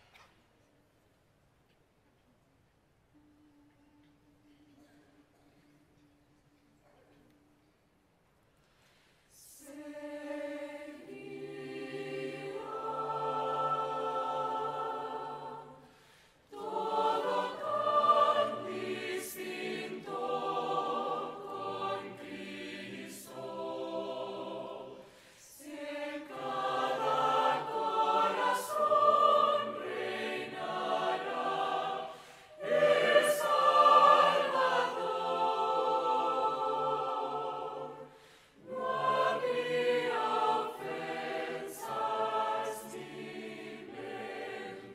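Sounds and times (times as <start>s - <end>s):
mixed choir singing: 9.3s - 44.9s.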